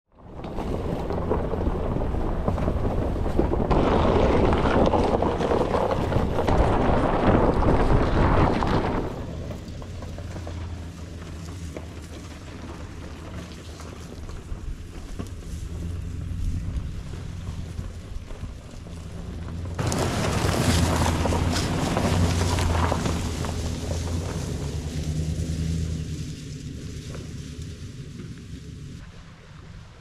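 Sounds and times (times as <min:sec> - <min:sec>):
truck engine rumble: 0:00.1 - 0:30.0
wind on microphone: 0:00.2 - 0:10.2
tyre noise on dirt: 0:00.2 - 0:30.0.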